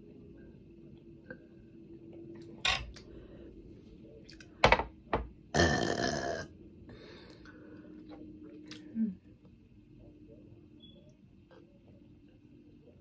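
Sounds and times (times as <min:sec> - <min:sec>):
woman burping: 0:05.6 - 0:06.5.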